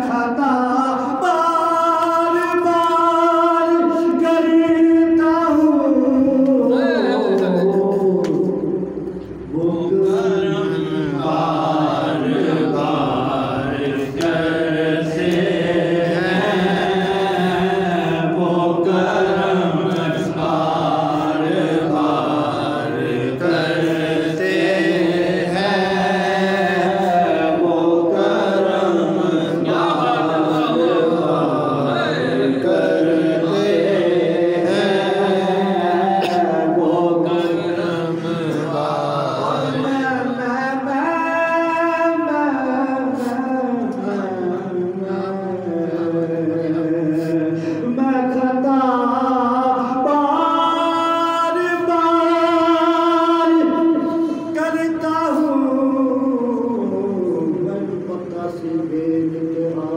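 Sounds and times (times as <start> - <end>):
man chanting devotional song: 0.0 - 59.9.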